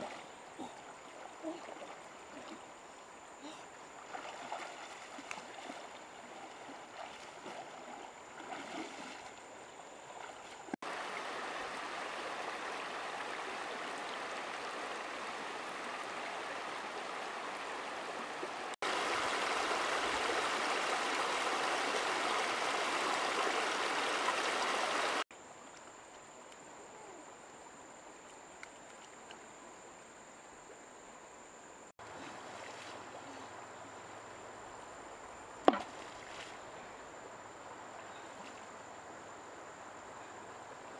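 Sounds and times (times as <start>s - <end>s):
splashing of person wading: 0.0s - 2.7s, 3.8s - 13.5s
river water running over rocks: 0.0s - 25.2s.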